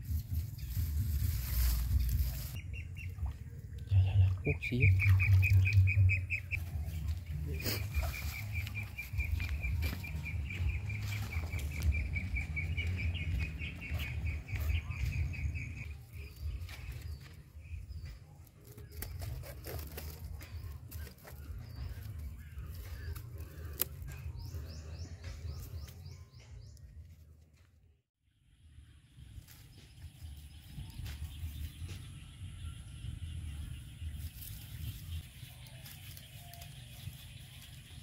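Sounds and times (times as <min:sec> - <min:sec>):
wicker basket rustling and creaking: 0:00.0 - 0:02.6, 0:18.4 - 0:24.1.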